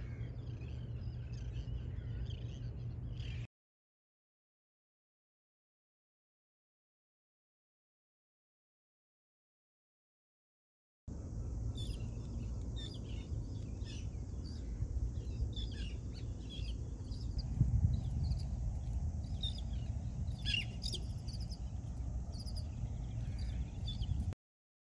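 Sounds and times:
birds chirping: 0.0 - 3.5, 11.2 - 24.4
low rumble: 11.1 - 24.4.

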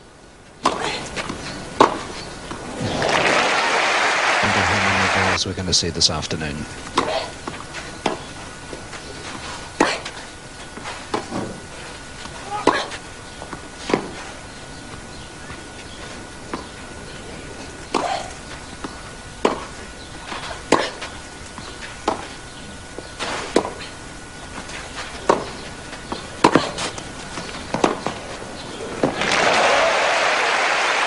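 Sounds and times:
rackets striking tennis ball: 0.6 - 3.3, 17.8 - 22.4, 23.0 - 23.9, 24.6 - 28.4.

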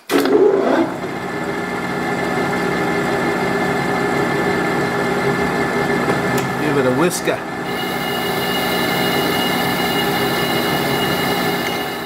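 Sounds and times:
metal lathe running: 7.4 - 12.0.

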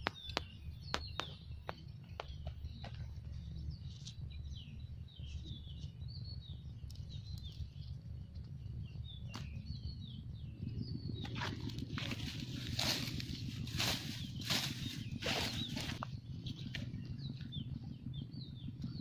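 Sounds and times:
small birds chirping: 0.0 - 19.0
steady low rumble: 0.0 - 19.0
grass rustling: 11.4 - 16.1.

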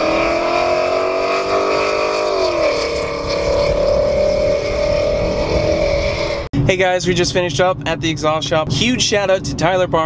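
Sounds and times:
car engine accelerating past: 0.0 - 6.5.

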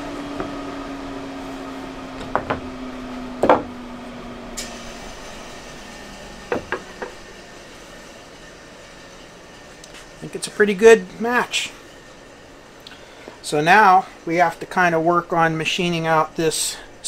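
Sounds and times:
table saw humming: 0.0 - 17.0
wooden boards knocking: 2.2 - 2.7, 3.4 - 3.8, 6.5 - 7.2.

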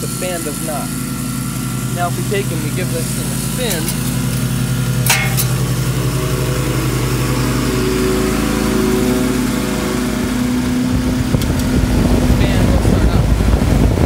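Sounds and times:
air conditioner unit humming: 0.0 - 14.0
fan motor sharp clack: 2.0 - 6.2, 10.6 - 13.1
rush of air from fan: 8.4 - 14.0.

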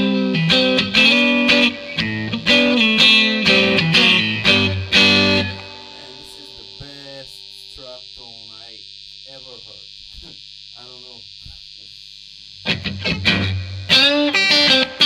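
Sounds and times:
electric guitar chords: 0.0 - 7.6, 12.6 - 15.0
amp hum and hiss: 0.0 - 15.0.

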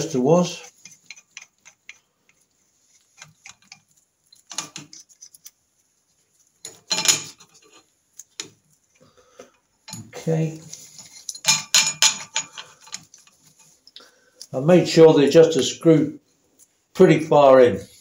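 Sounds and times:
metallic clicks and clinks of tool: 9.8 - 14.6.

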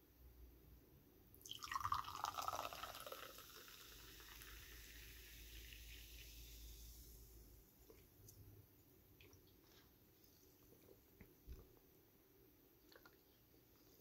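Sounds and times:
fizzing bubbles: 1.4 - 6.6
sparkling water pouring into glass: 1.4 - 7.1.

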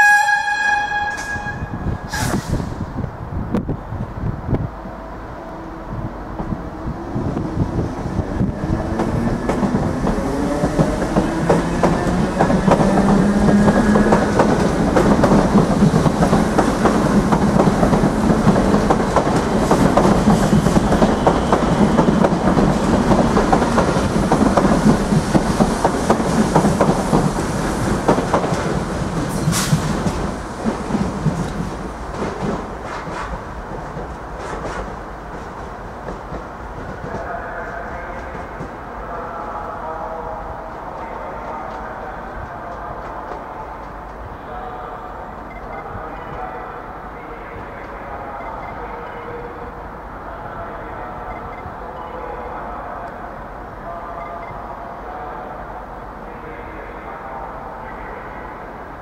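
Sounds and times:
train wheels clattering: 8.8 - 38.7.

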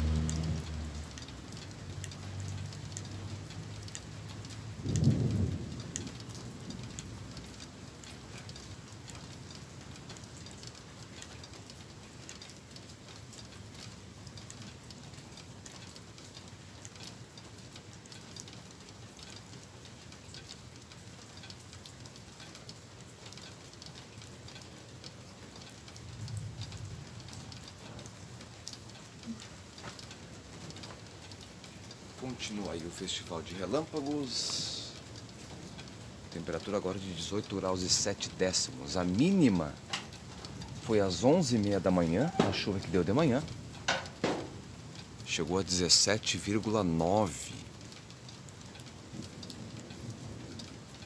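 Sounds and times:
steady rain: 0.0 - 51.0
thunder clap and rumble: 2.5 - 8.7, 49.1 - 51.0.

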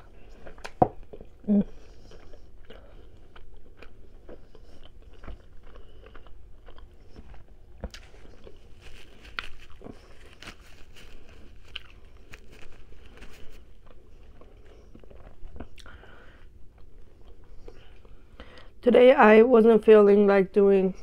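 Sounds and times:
person chewing: 0.0 - 18.7.

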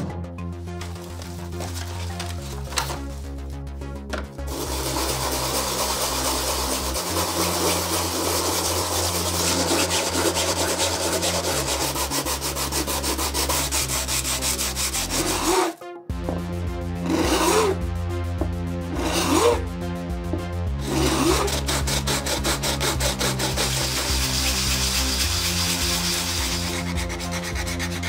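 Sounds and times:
plastic rubbing on sandpaper: 4.5 - 15.8, 20.8 - 28.0.

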